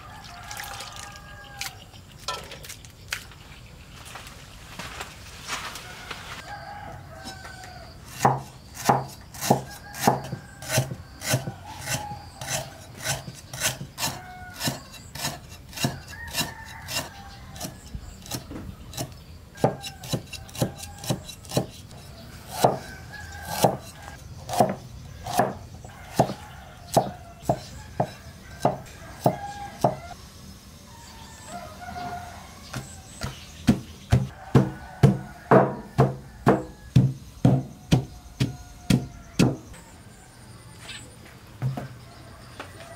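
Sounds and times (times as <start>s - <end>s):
knife chopping on wooden board: 8.2s - 21.8s, 22.5s - 30.0s, 32.7s - 39.7s.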